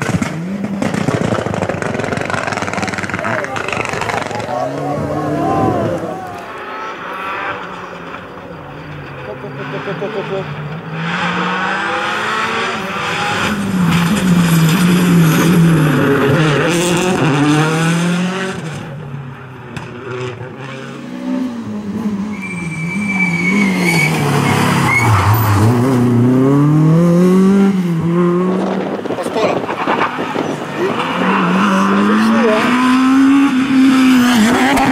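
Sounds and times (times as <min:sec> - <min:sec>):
rally car engines revving: 0:00.0 - 0:34.9
high thin tyre squeal: 0:22.2 - 0:25.7.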